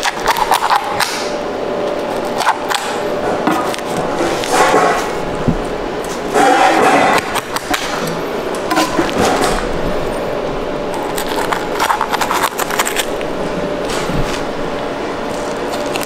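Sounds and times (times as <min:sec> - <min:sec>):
knife scraping fish bones: 0:00.0 - 0:01.1, 0:11.0 - 0:13.2.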